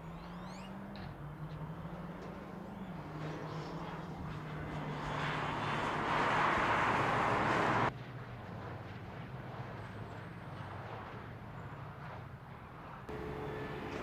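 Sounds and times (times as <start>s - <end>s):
car engine revving and shifting: 0.4s - 7.9s
car passing rush: 1.2s - 7.9s.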